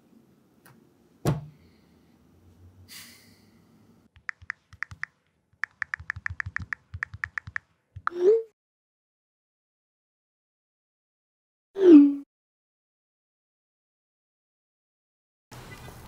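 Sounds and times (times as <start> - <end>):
keyboard typing clicks: 4.2 - 8.2.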